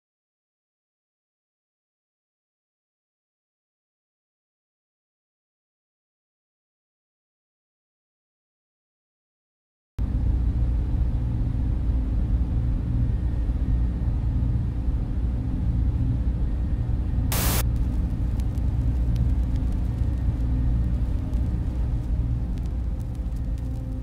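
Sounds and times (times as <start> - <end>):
machine room drone: 10.0 - 24.0
static-like hiss: 17.3 - 24.0
faint clicks: 17.6 - 24.0.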